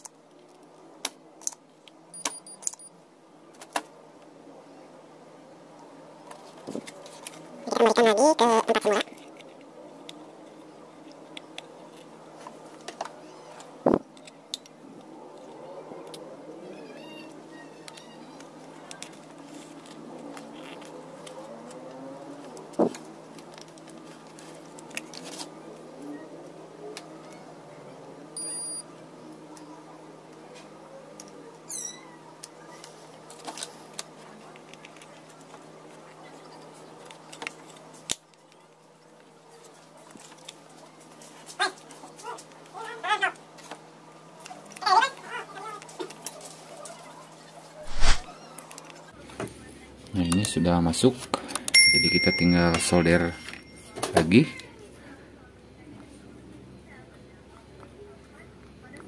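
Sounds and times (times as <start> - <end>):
short high beep: 2.1 - 2.9, 28.4 - 28.8.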